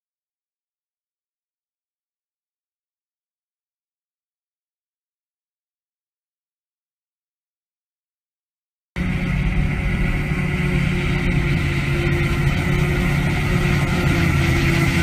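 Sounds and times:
forage harvester and tractor droning: 0:09.0 - 0:15.0.

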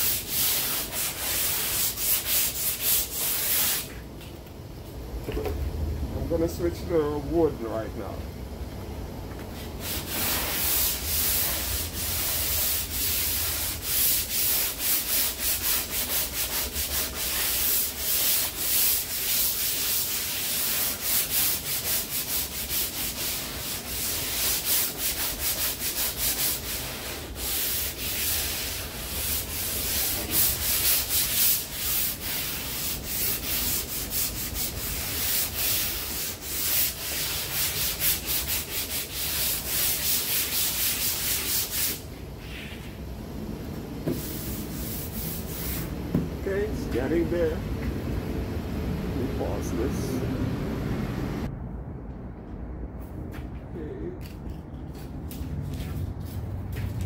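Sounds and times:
sandpaper rasping on filler: 0:00.0 - 0:03.9, 0:09.6 - 0:42.9, 0:44.1 - 0:45.9.

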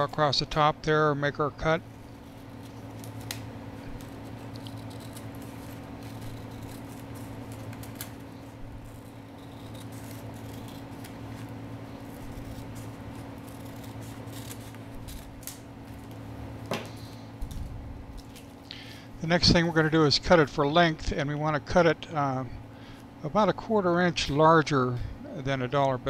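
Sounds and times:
steady low hum: 0:00.0 - 0:26.0
paper rustling: 0:02.0 - 0:16.2
scissors snipping paper: 0:02.1 - 0:16.2.

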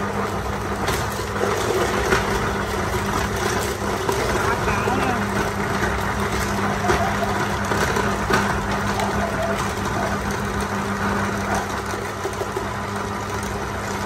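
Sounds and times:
fish grinder motor hum: 0:00.0 - 0:14.0.

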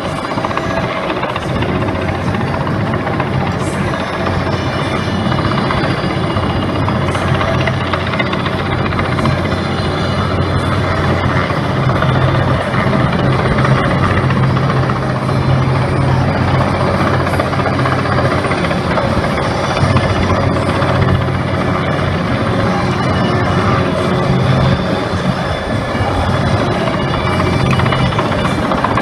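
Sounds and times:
helicopter rotor and engine drone: 0:00.0 - 0:29.0.

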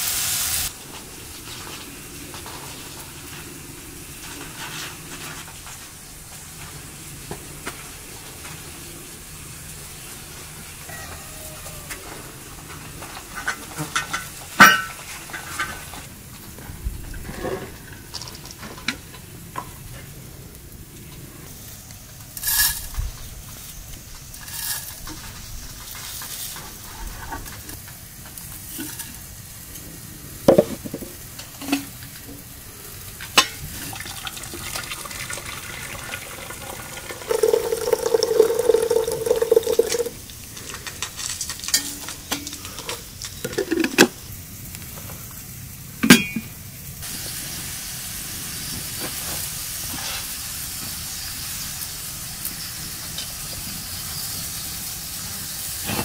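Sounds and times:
food sizzling: 0:00.0 - 0:16.6, 0:17.4 - 0:56.0
metal knocks on pot: 0:30.5 - 0:31.1, 0:46.1 - 0:46.5.

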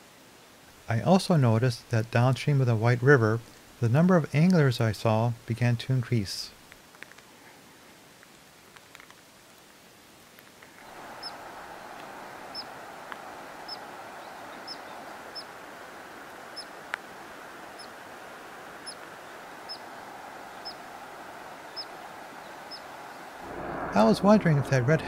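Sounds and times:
steady rushing noise: 0:10.8 - 0:25.0.

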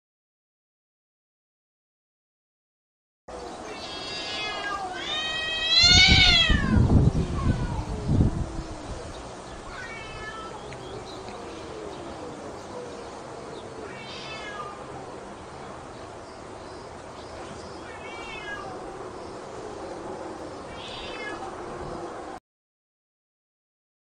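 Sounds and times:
cats yowling: 0:03.5 - 0:15.1, 0:17.8 - 0:19.1, 0:20.2 - 0:22.0
cat high-pitched cries: 0:03.7 - 0:08.8, 0:09.7 - 0:10.6, 0:13.9 - 0:14.9, 0:17.8 - 0:18.8, 0:20.7 - 0:21.5.

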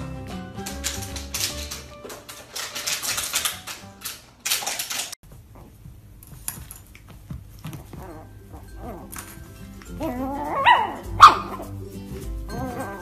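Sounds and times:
background music: 0:00.0 - 0:04.1, 0:08.0 - 0:13.0
rapid irregular clicking: 0:00.2 - 0:05.2.

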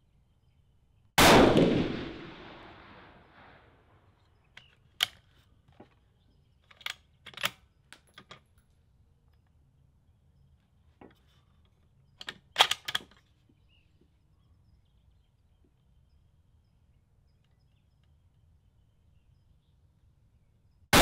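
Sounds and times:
rifle bolt clicks: 0:04.6 - 0:05.5, 0:06.6 - 0:08.4, 0:12.2 - 0:13.2.

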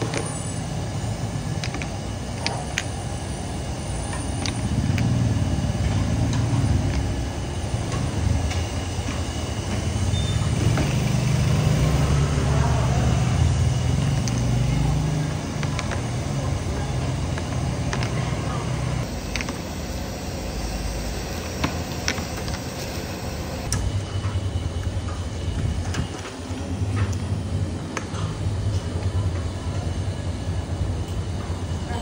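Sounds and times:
street traffic rumble: 0:00.0 - 0:32.0
cups clicking on plastic trays: 0:01.6 - 0:02.9.

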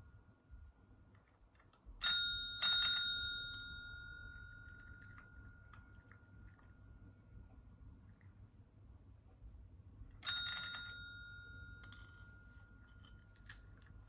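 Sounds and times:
desk service bell dings: 0:02.0 - 0:04.8, 0:10.2 - 0:12.8.

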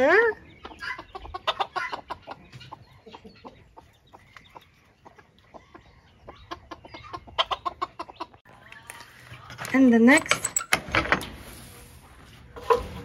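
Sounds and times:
chickens clucking: 0:00.0 - 0:09.4, 0:12.4 - 0:13.0.

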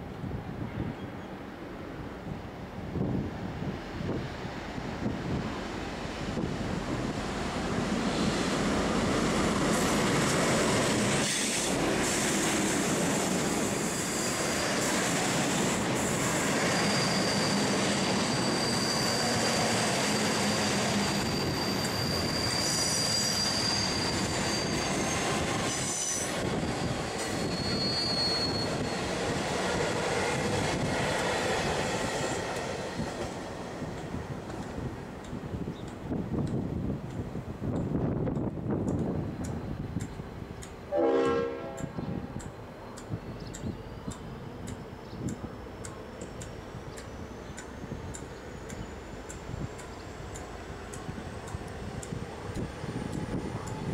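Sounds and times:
train wheel and rail noise: 0:00.0 - 0:53.9
high-pitched wheel squeal: 0:16.2 - 0:26.4, 0:27.2 - 0:29.2.

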